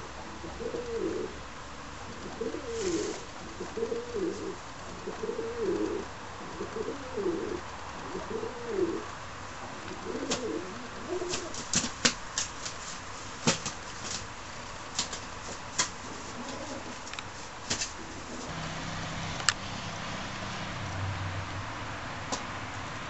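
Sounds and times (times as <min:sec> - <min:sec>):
pigeons cooing: 0:00.0 - 0:14.2, 0:15.4 - 0:18.6
pigeon wings flapping: 0:02.3 - 0:04.6, 0:09.9 - 0:18.5.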